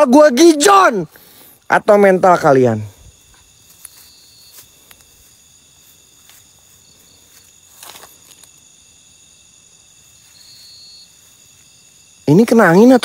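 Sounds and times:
crickets chirring: 0.0 - 13.0
footsteps rustling in grass: 3.1 - 12.2.

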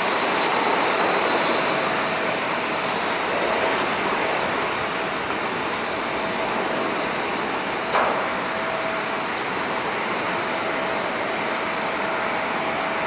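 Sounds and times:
faint jet engine whine: 0.0 - 13.0
jet engine rush: 0.0 - 13.0.

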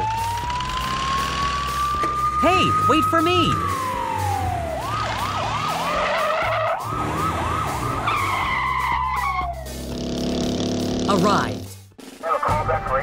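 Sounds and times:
siren yelping and wailing: 0.0 - 9.7
background music: 0.0 - 13.0.

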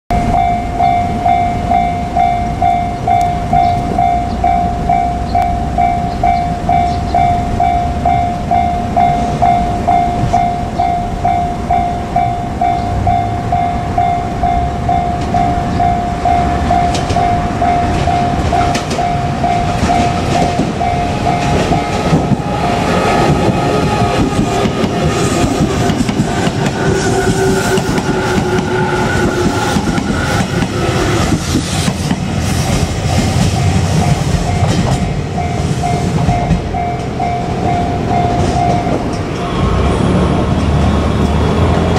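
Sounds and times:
level crossing bell ringing: 0.1 - 22.8, 33.6 - 39.1
train wheels clattering: 16.4 - 41.9.

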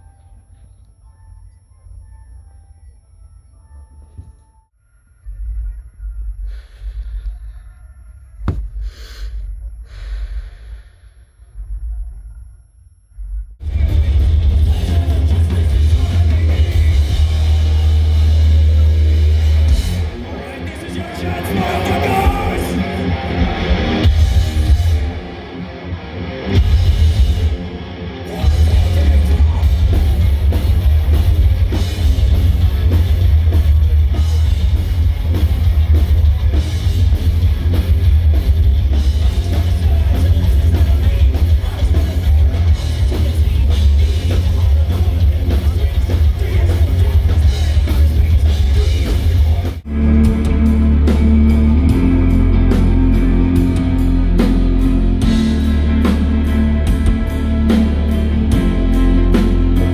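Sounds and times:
steady drum beat: 13.6 - 20.2, 28.4 - 59.9
heavy metal band playing live: 13.6 - 59.9.

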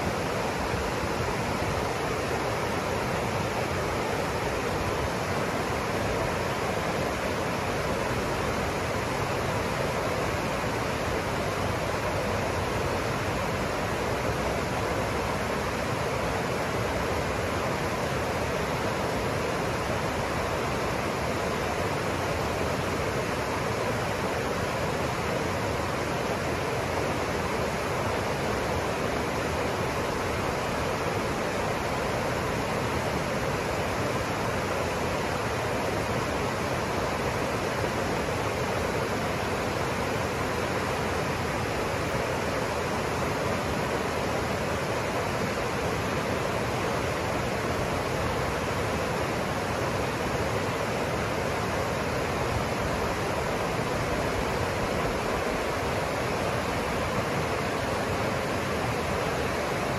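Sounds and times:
river rushing over rocks: 0.0 - 59.9.

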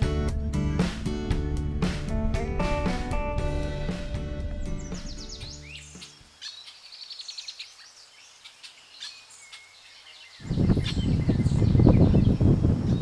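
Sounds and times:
small birds chirping: 4.1 - 13.0
wind buffeting microphone: 10.4 - 13.0.

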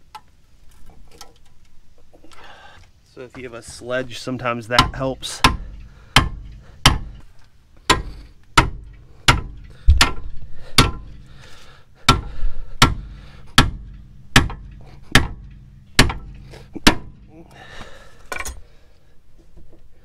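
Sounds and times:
hammer striking metal: 4.7 - 7.2, 7.9 - 11.1, 12.1 - 17.3.

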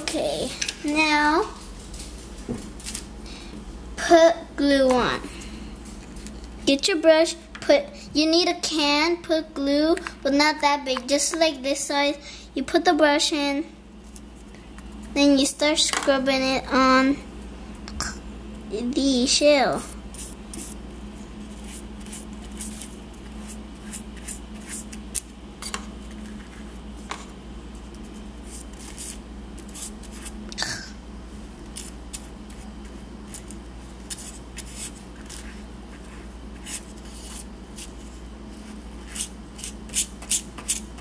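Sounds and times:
paintbrush scrubbing on shell: 20.1 - 25.0.

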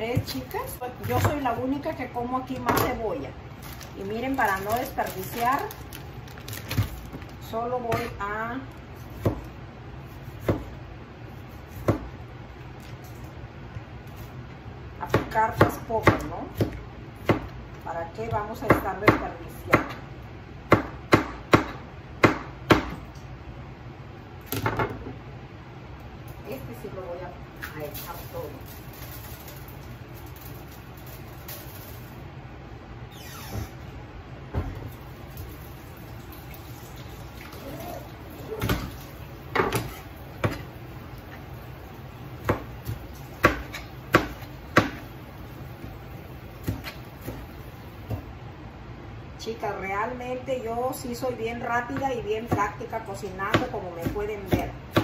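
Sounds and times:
knife chopping on cutting board: 9.1 - 9.5, 10.3 - 10.8, 39.5 - 40.7, 42.4 - 45.0, 46.6 - 47.4, 53.5 - 55.0.

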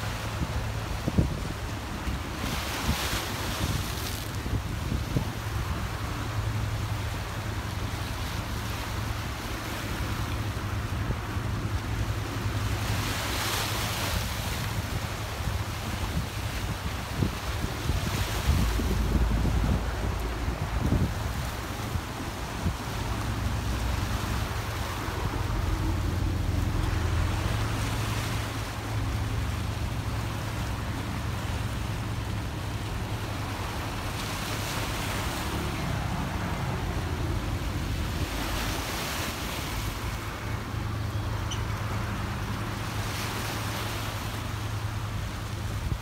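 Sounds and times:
harbour water: 0.0 - 46.0
wind buffeting microphone: 14.7 - 28.2.

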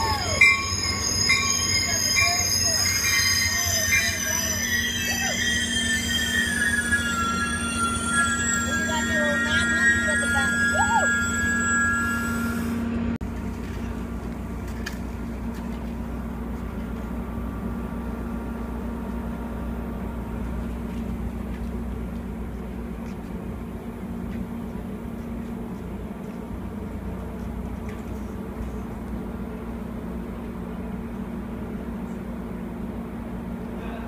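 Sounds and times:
held tone: 0.0 - 13.0
train wheels rumbling on rails: 0.0 - 34.0.

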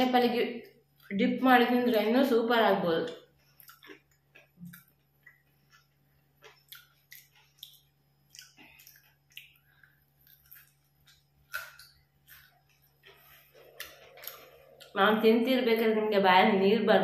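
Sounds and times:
person chewing crispy snack: 3.3 - 15.0.

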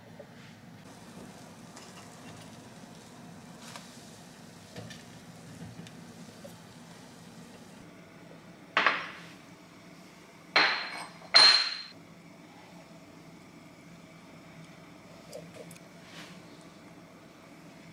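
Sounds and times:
kitchenware knocks ringing: 10.6 - 11.9.

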